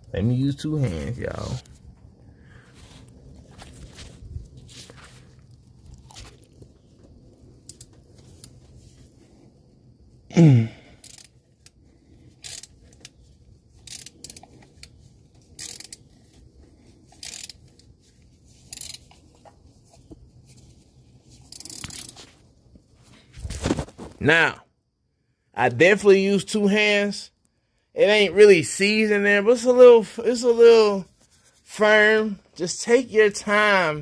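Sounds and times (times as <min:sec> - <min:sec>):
hand ratchet clicking: 0:11.0 - 0:11.8, 0:12.4 - 0:16.2, 0:17.1 - 0:17.8, 0:18.6 - 0:19.2, 0:21.5 - 0:22.2.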